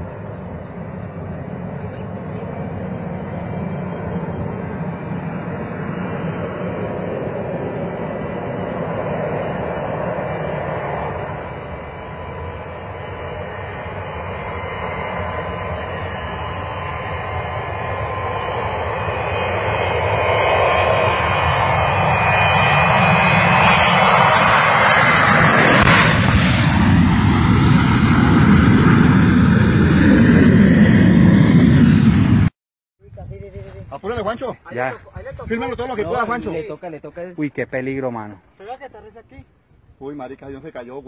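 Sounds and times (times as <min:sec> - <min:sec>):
jet engines at takeoff: 0:00.0 - 0:32.6.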